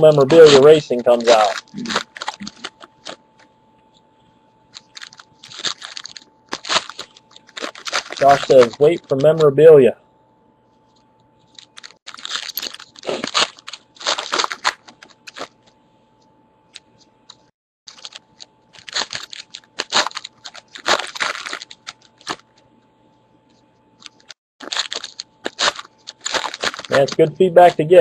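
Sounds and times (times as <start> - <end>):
card packaging crinkling: 0.0 - 3.2, 4.7 - 9.6, 11.5 - 15.7, 17.9 - 22.6, 24.0 - 28.0.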